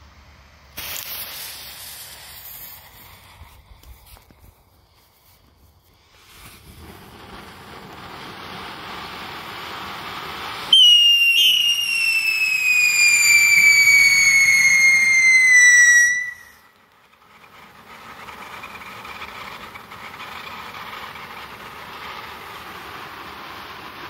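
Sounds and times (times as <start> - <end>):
firework fountain spray hissing: 0.0 - 24.0
firework whistling falling in pitch: 6.0 - 16.8.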